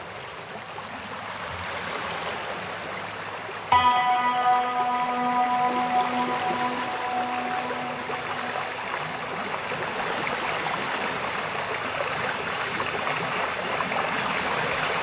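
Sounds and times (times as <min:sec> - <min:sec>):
rushing stream-like noise: 0:00.0 - 0:15.0
ambient music held tones: 0:03.7 - 0:11.1.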